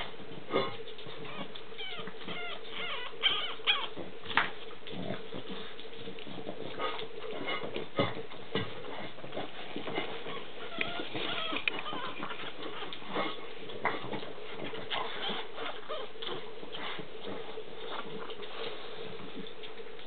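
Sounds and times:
puppies squeaking and whimpering: 1.1s - 4.0s, 9.8s - 17.0s.

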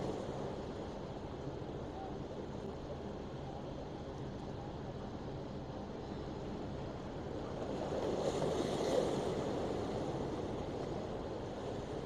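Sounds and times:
wind: 0.0s - 12.0s
sea noise: 7.2s - 12.0s.

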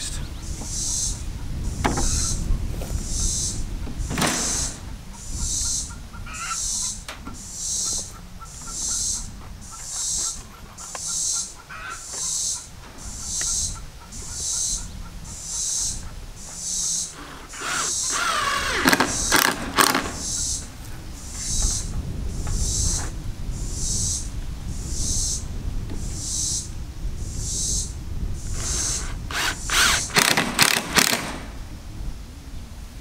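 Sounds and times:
cicadas buzzing: 0.0s - 32.1s
cordless drill driving screw: 17.1s - 20.4s, 28.5s - 31.4s.

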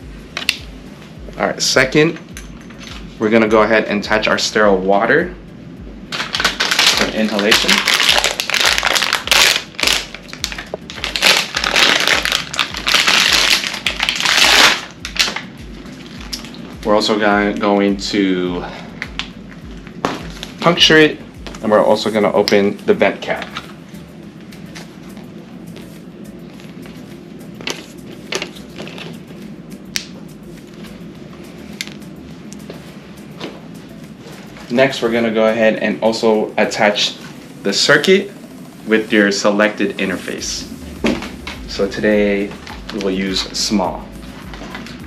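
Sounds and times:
plastic bag crinkling: 6.2s - 16.6s.

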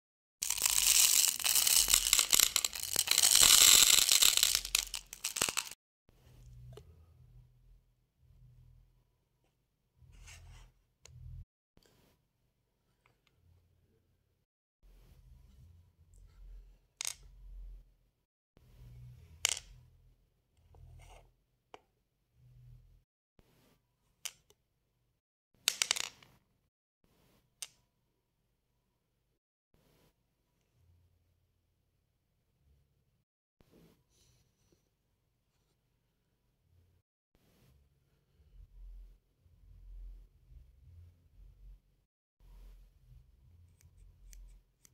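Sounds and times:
beads poured into dish: 0.4s - 5.8s.

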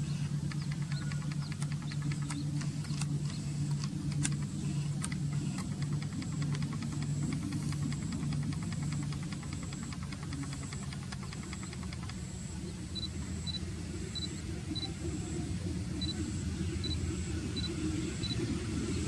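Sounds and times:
fast even ticking: 0.0s - 14.4s.

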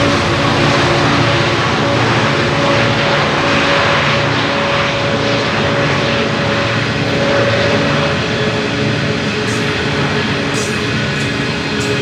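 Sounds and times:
diesel locomotive engines droning: 0.0s - 12.0s.

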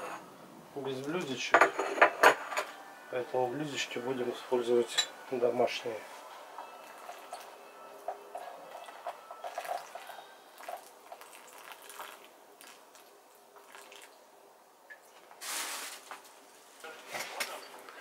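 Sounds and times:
pot taps and clinks: 6.6s - 10.8s
water trickling and dripping: 6.8s - 7.6s, 8.7s - 14.2s.

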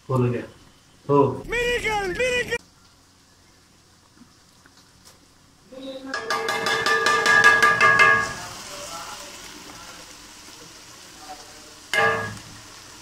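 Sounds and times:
food sizzling in a pan: 5.2s - 13.0s.

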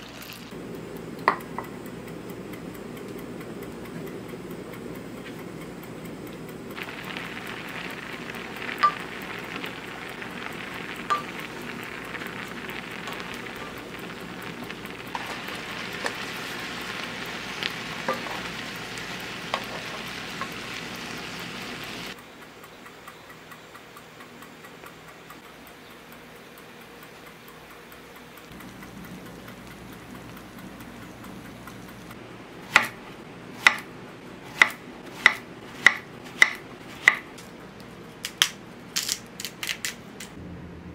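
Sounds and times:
water boiling in a pot: 0.0s - 4.3s, 6.6s - 22.3s, 28.4s - 37.4s
knife chopping on wooden board: 32.7s - 33.0s, 33.6s - 33.9s, 34.5s - 37.3s.

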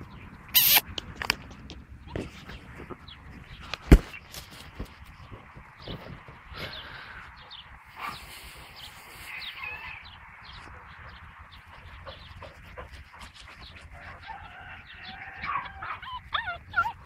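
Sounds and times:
puppies whining and yipping: 13.6s - 17.0s.

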